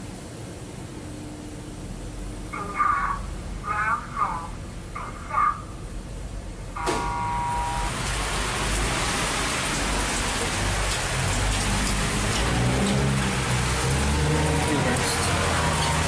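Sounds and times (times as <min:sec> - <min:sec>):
heavy rain pouring: 0:00.0 - 0:16.0
elevator electronic beep: 0:06.8 - 0:07.9.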